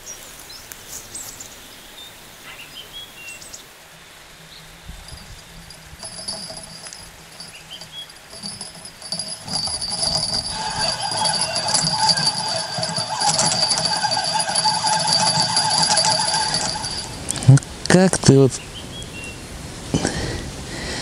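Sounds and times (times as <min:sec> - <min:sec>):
bite bell jingling: 0:04.9 - 0:17.6
fishing reel whirring and ticking: 0:04.9 - 0:17.6.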